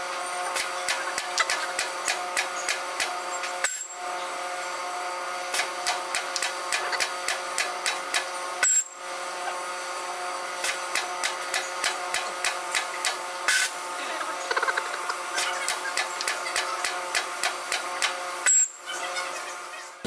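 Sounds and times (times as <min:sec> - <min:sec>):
robot arm machine whine: 0:00.1 - 0:05.8, 0:06.4 - 0:17.2, 0:18.3 - 0:20.0
sharp clicks: 0:05.6 - 0:08.3, 0:15.4 - 0:18.6
loud pneumatic hissing bursts: 0:13.5 - 0:13.8.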